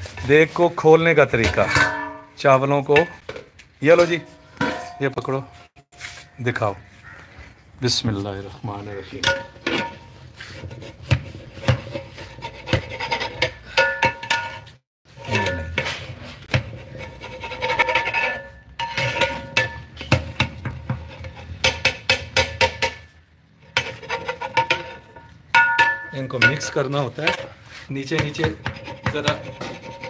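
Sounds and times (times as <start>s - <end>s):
metal pot ringing: 1.5s - 3.2s, 13.7s - 14.6s, 15.2s - 15.9s, 17.8s - 20.0s, 25.1s - 26.9s
metal rod scraping a pot: 9.1s - 30.0s.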